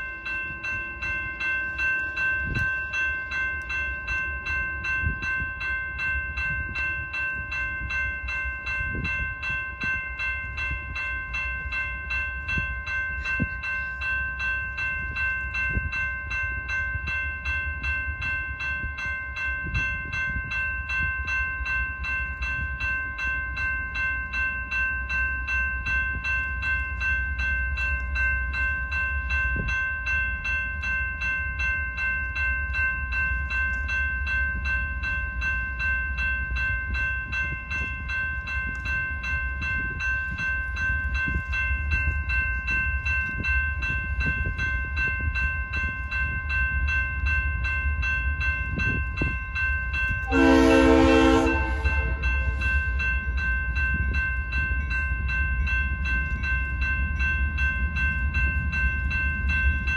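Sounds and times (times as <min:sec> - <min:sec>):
railroad crossing bell ringing: 0:00.0 - 0:59.9
locomotive horn blast: 0:50.3 - 0:52.6.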